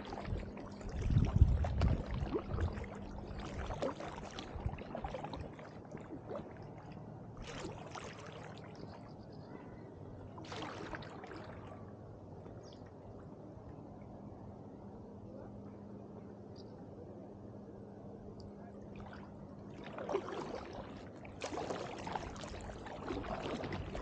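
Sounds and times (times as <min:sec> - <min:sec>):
paddle splashing water: 0:00.0 - 0:09.1, 0:10.3 - 0:11.9, 0:18.8 - 0:24.0.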